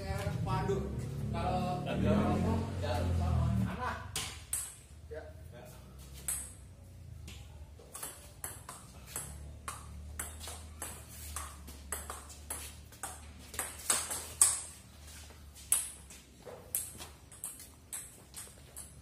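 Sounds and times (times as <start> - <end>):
ping-pong ball hitting paddles: 4.1 - 4.9, 6.1 - 14.8, 15.6 - 19.0.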